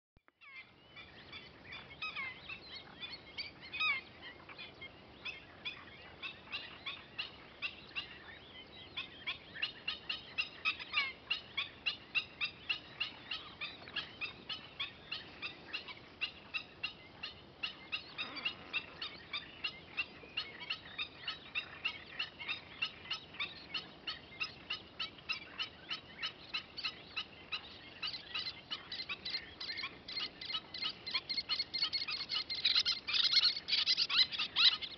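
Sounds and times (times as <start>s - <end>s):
terns calling: 0.4s - 34.9s.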